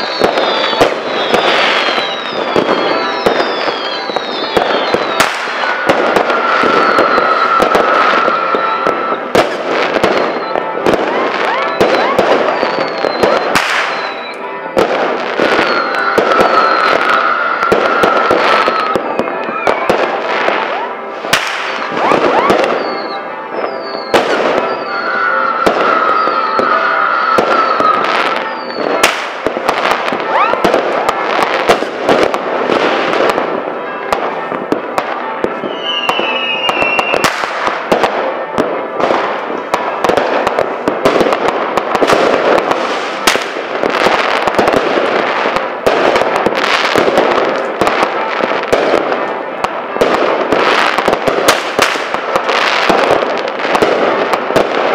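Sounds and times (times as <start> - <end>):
firework whistle: 0.0 - 54.9
fireworks bangs and crackles: 0.0 - 54.9
short falling whistle: 11.5 - 14.4, 15.6 - 19.9, 22.0 - 28.9, 35.7 - 37.3.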